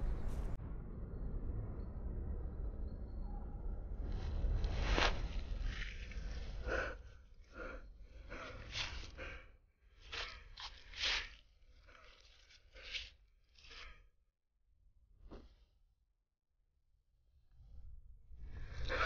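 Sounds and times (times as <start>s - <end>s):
wind rumble on microphone: 0.0s - 6.4s.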